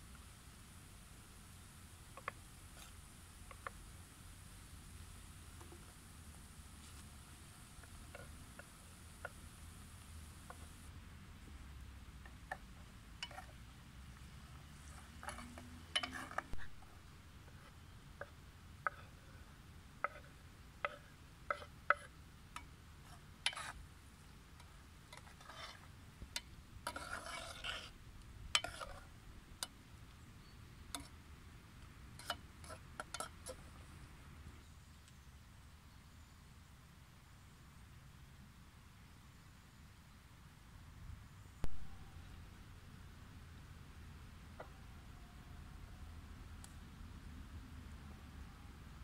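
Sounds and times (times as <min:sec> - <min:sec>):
spoon scraping pot: 0:13.2 - 0:13.6, 0:14.8 - 0:18.0, 0:20.0 - 0:23.8, 0:24.6 - 0:29.1, 0:32.2 - 0:33.6
spoon tapping metal pot: 0:15.3 - 0:16.3.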